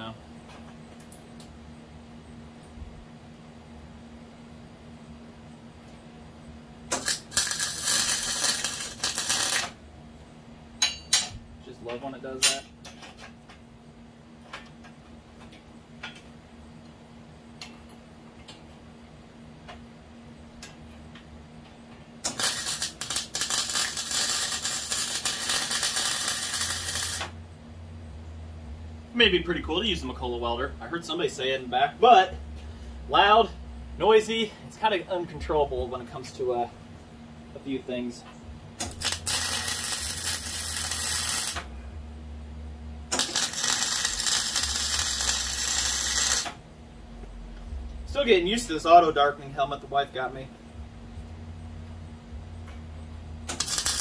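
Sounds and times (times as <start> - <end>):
low hum: 0.0 - 11.7, 13.2 - 54.0
welding arc crackling: 6.9 - 9.8, 22.2 - 27.4, 38.8 - 41.8, 43.1 - 46.6, 53.4 - 54.0.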